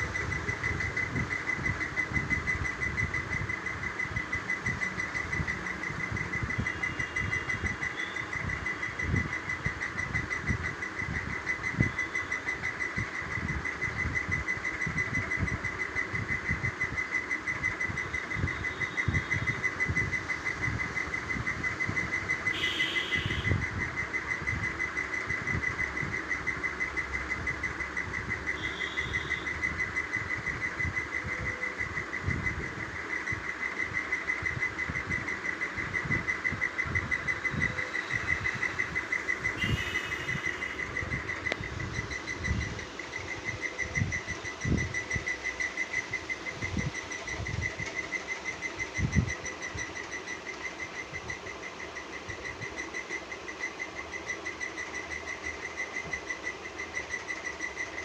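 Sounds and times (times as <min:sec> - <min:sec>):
high-pitched pulsing drone: 0:00.0 - 0:58.0.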